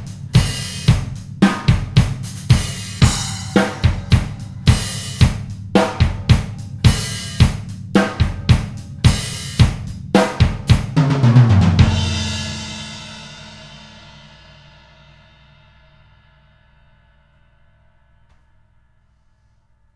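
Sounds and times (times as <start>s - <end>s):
tom fill: 0.0s - 13.7s
drum kit playing a beat: 0.0s - 14.5s
cymbal crash and kick hit: 0.0s - 14.8s.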